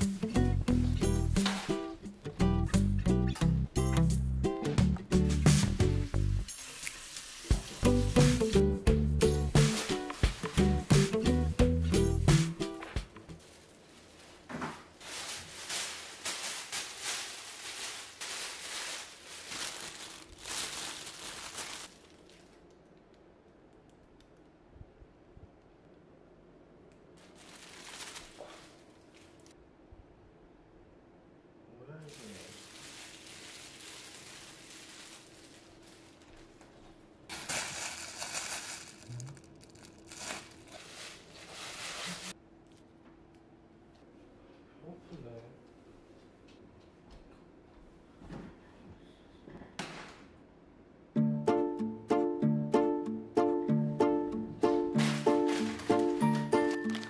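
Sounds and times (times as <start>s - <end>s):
plastic bag crinkling: 9.5s - 10.8s, 13.3s - 22.9s, 27.2s - 29.6s, 32.1s - 42.4s, 55.0s - 57.0s.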